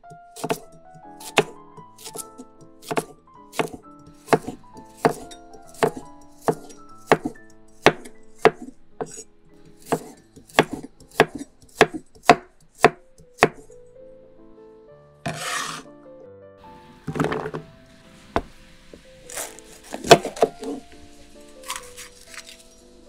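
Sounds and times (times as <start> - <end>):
knife chopping on wooden board: 0.3 - 13.6, 15.3 - 15.9, 19.3 - 20.8
brief scraping: 15.3 - 15.9.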